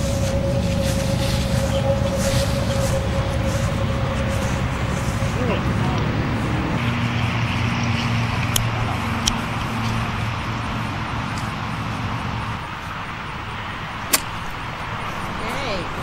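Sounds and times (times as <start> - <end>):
low engine hum: 0.0 - 16.0
golf club striking ball: 14.1 - 14.5.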